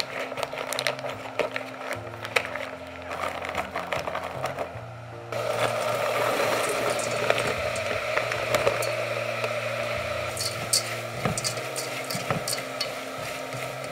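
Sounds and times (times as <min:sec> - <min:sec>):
soft background music: 0:00.0 - 0:13.9
food sizzling in pot: 0:05.3 - 0:13.9.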